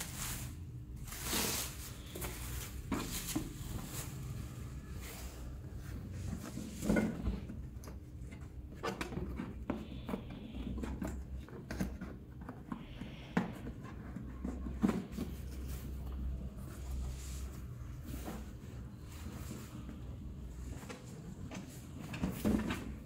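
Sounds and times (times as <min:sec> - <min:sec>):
box scraping on tiles: 0:00.0 - 0:05.6.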